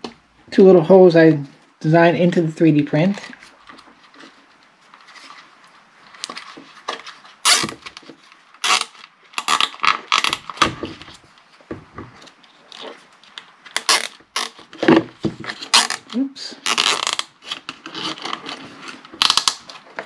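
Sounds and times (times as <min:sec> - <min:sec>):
plastic handling noise: 0:03.1 - 0:20.0
zip ties rasping tight: 0:07.4 - 0:07.8, 0:08.6 - 0:10.4, 0:13.8 - 0:14.6, 0:15.7 - 0:16.0, 0:16.7 - 0:17.3.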